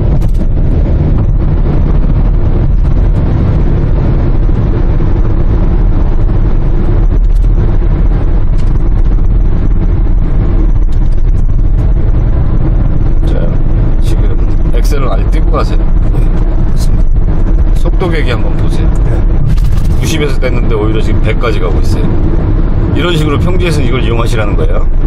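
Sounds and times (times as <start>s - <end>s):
engine tyre and wind rumble: 0.0s - 25.0s.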